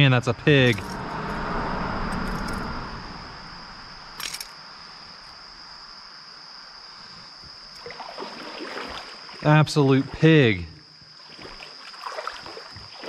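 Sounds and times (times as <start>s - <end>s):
high-pitched insect chorus: 0.0s - 13.0s
water splashing: 7.8s - 10.3s, 11.2s - 13.0s.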